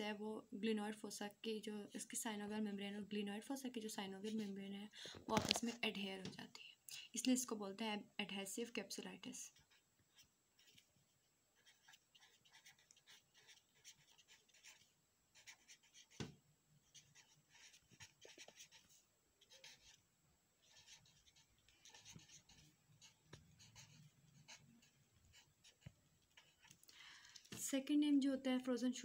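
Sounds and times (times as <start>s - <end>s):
pen scratching on paper: 9.4s - 10.9s, 11.6s - 20.0s, 20.6s - 26.7s.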